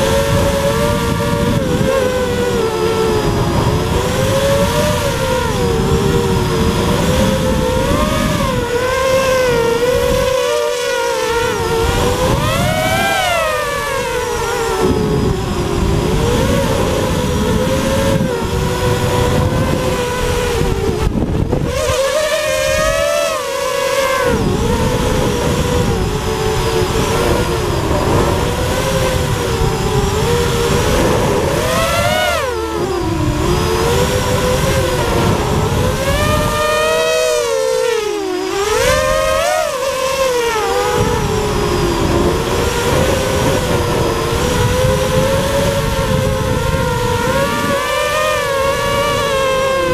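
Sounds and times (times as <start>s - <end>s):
drone propellers whining: 0.0s - 49.9s
rush of air: 24.4s - 36.6s.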